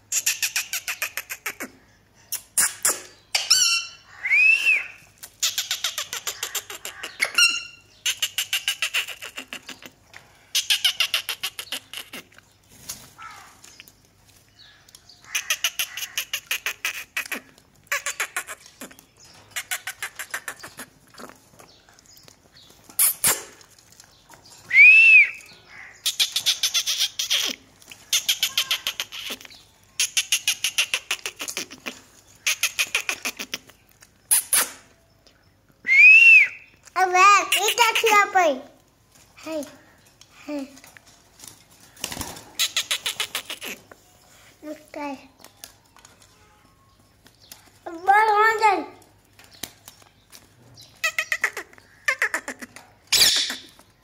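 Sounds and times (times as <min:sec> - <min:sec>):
parakeet squawks: 0:51.1 - 0:53.7.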